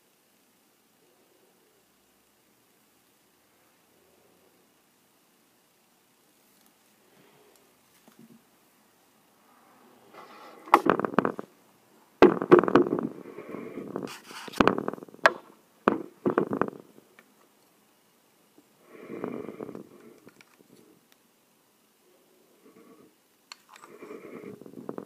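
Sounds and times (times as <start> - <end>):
rustling: 12.2 - 17.8.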